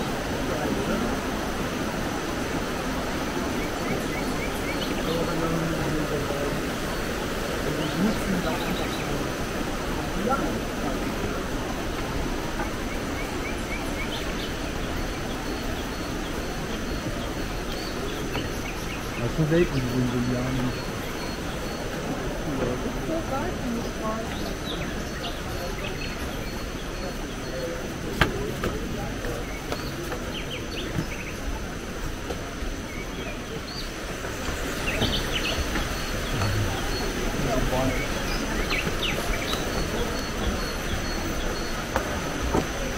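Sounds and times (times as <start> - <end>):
steady background hiss: 0.0 - 42.9
small birds chirping: 0.2 - 42.9
bird chirps: 32.9 - 42.2.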